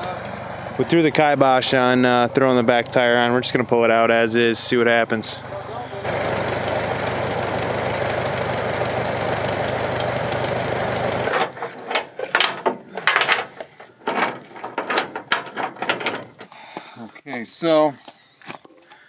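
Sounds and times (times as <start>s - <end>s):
tractor engine running: 0.0s - 16.5s
steel chain clinking and rattling: 11.3s - 16.5s.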